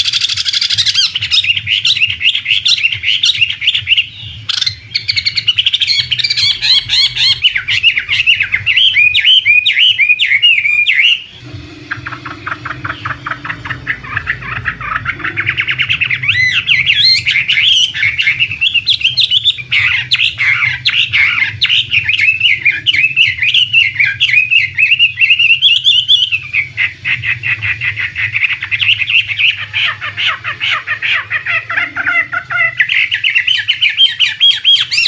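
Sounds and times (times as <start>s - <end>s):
bird singing whistled notes: 0.0s - 11.4s, 15.2s - 26.8s
faint low hum: 3.4s - 34.3s.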